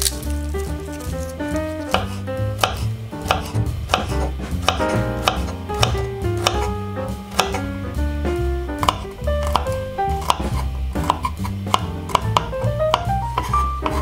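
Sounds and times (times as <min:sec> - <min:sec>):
background music: 0:00.0 - 0:14.0
knife tapping cutting board: 0:01.8 - 0:07.7, 0:08.8 - 0:14.0.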